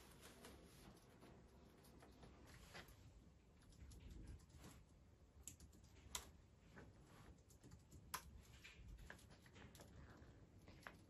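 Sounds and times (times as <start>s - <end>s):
typing on computer keyboard: 3.6s - 4.7s, 5.4s - 6.4s, 7.4s - 11.0s.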